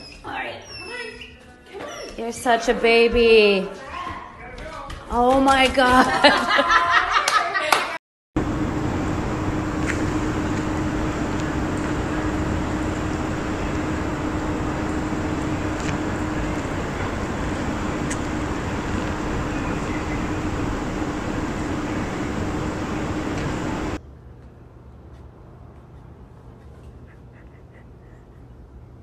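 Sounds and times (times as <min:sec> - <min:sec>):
constant low hum: 0:08.4 - 0:29.0.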